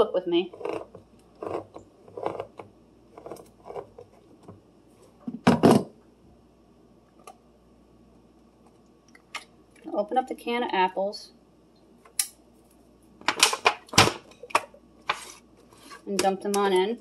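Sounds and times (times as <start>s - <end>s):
can opener cutting tin: 0.5s - 2.6s.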